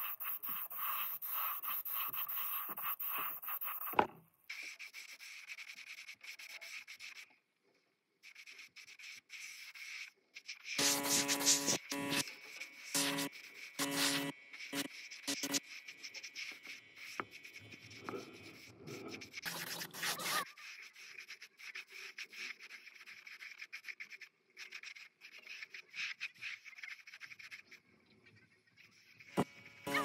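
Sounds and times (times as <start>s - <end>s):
rubbing and scraping on surface: 0.0s - 7.4s, 8.2s - 30.0s.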